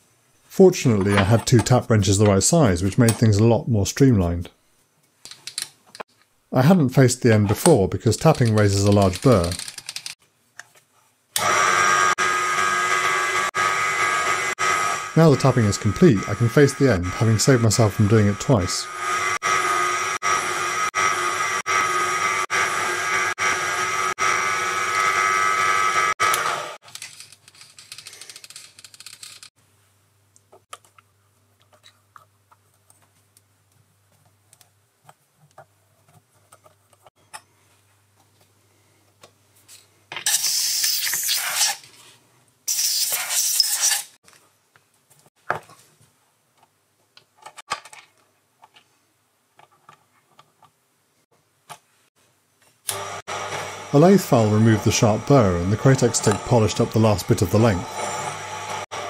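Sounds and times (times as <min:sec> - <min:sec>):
small metallic clicks: 0:05.2 - 0:06.3, 0:08.4 - 0:10.7
mini lathe running: 0:52.9 - 0:59.0.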